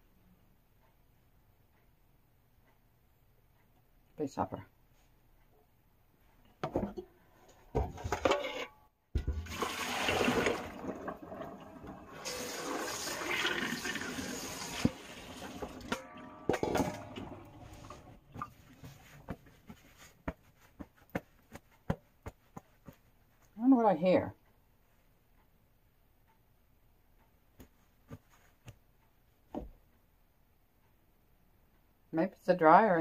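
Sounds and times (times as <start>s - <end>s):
water running from tap: 9.2s - 16.0s.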